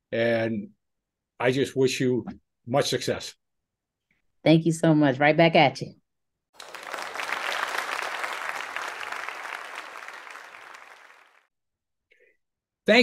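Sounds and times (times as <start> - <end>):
crowd applause: 6.6 - 11.5.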